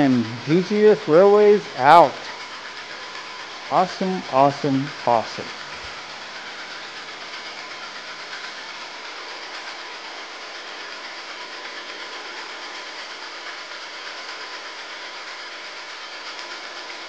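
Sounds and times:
thin steady tone: 0.0 - 11.3
toy train running on track: 0.0 - 17.0.

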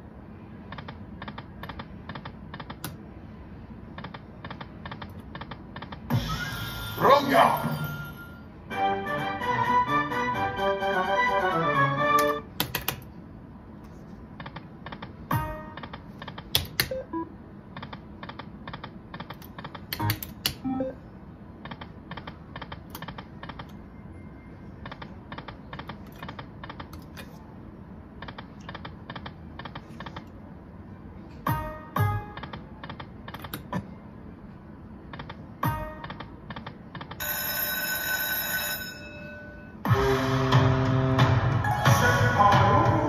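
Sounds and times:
slot machine win tune: 6.2 - 12.4, 39.9 - 43.0.

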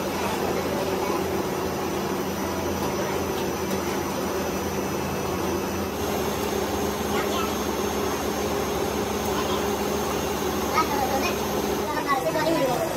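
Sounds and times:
machine humming and whirring: 0.0 - 12.9.

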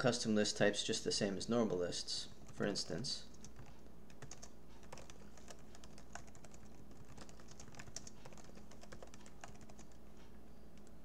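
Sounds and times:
typing on computer keyboard: 3.3 - 10.0.

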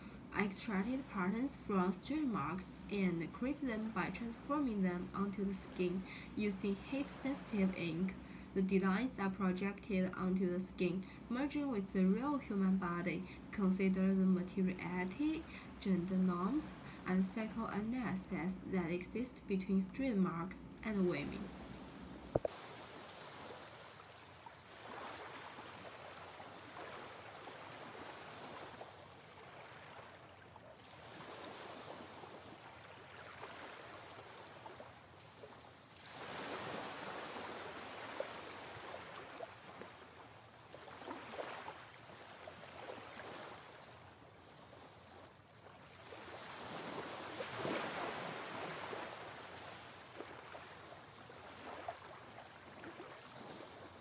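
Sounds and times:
waves washing in and out: 0.0 - 54.0.

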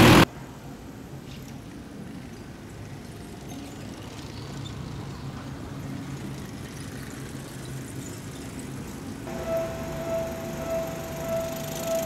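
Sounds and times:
faint street noise: 0.0 - 12.0
vehicle engine idling: 9.3 - 12.0.

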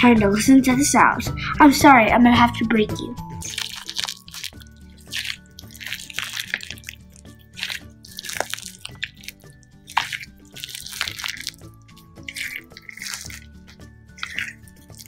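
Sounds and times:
background music: 0.0 - 15.0
beads crackling in slime: 3.4 - 15.0
slime squishing: 3.4 - 15.0.

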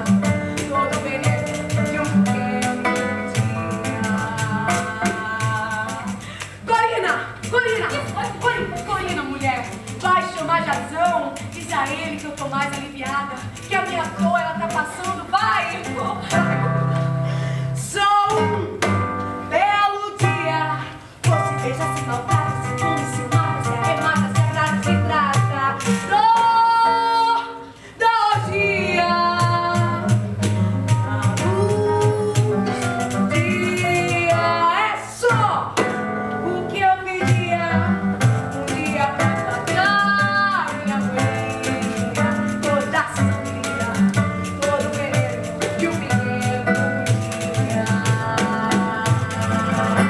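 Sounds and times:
light percussion: 0.0 - 17.2, 20.2 - 26.8, 28.3 - 50.0
woman singing: 0.0 - 50.0
bass line: 28.5 - 34.6.

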